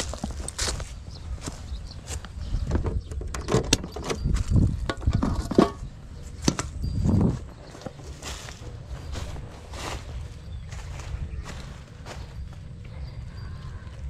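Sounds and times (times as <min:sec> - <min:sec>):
motorbike seat clicks and knocks: 0:02.7 - 0:04.3.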